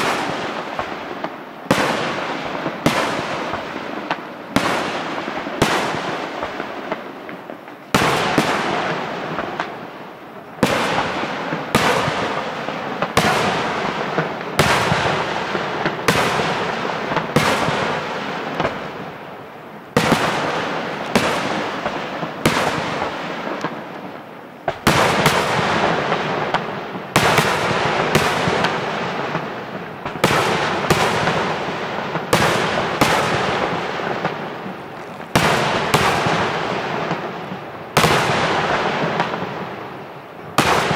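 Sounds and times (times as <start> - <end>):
firework shells bursting: 30.1 - 39.4.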